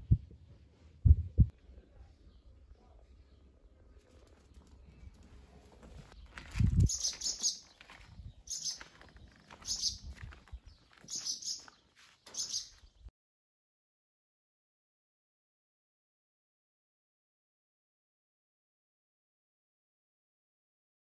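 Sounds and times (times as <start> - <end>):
small birds chirping: 1.6 - 13.1.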